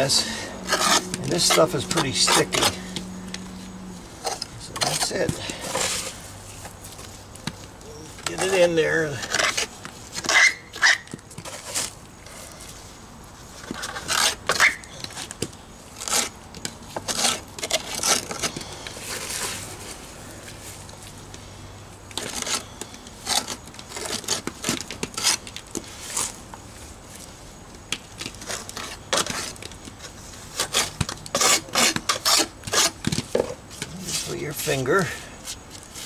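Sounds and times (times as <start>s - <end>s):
jointing tool scraping mortar: 0.0s - 3.4s, 4.2s - 6.2s, 8.0s - 12.5s, 13.6s - 15.3s, 16.0s - 19.5s, 22.1s - 26.4s, 28.3s - 36.0s.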